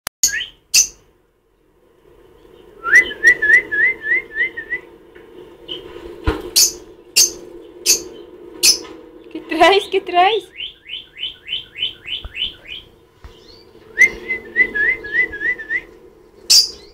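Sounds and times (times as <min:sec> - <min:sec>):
lovebird shrill chirps: 0:00.2 - 0:01.0
steady low hum: 0:00.3 - 0:16.9
rising whistled notes: 0:02.1 - 0:09.3, 0:10.5 - 0:16.9.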